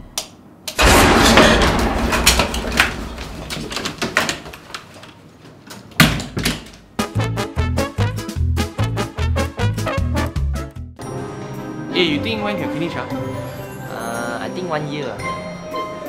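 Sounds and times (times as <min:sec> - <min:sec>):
clicks and knocks: 0:00.7 - 0:06.8
loud bang: 0:00.8 - 0:04.2
door shutting: 0:00.8 - 0:04.9
upbeat swing music: 0:07.0 - 0:10.8.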